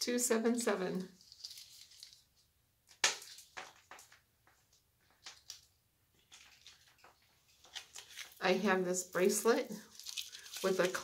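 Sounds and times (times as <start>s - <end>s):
jewelry clicking and rustling: 2.9s - 8.4s, 9.9s - 11.0s.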